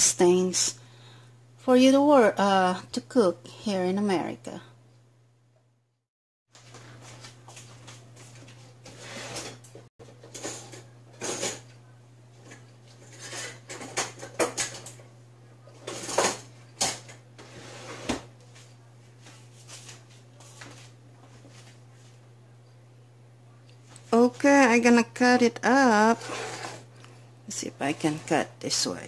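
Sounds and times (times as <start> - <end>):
steady low hum: 0.0 - 6.0.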